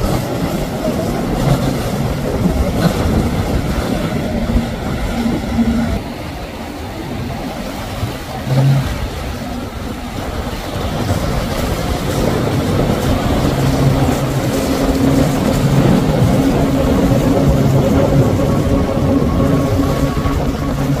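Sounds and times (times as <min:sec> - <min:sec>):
boat outboard motors droning: 0:00.0 - 0:21.0.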